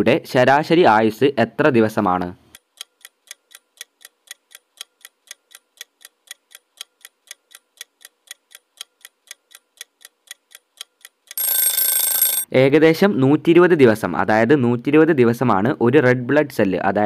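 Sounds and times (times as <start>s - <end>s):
clock ticking: 2.5s - 12.5s
ringing alarm: 11.4s - 12.5s.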